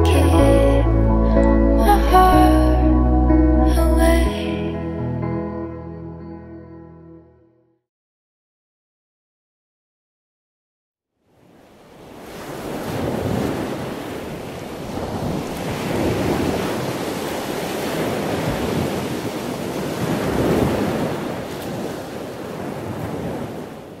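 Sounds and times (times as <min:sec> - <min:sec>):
sea waves washing in: 0:11.2 - 0:24.0.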